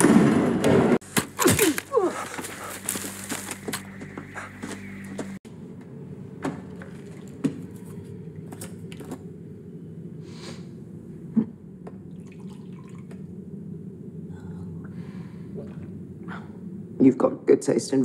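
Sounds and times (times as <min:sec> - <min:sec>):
low steady hum: 0:01.0 - 0:18.0
liquid pouring: 0:12.1 - 0:13.2.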